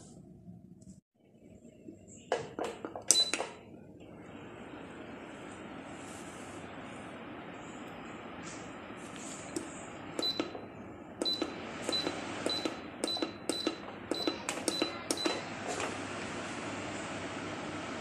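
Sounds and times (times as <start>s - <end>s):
fan control panel beeping: 3.0s - 3.6s, 9.5s - 16.0s
fan running airy hiss: 3.7s - 18.0s.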